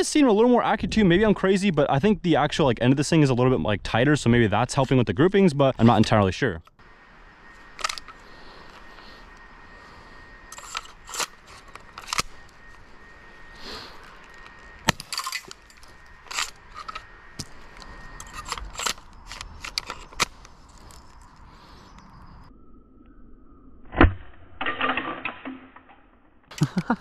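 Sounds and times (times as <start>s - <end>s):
plastic and metal clicks: 14.2s - 21.2s.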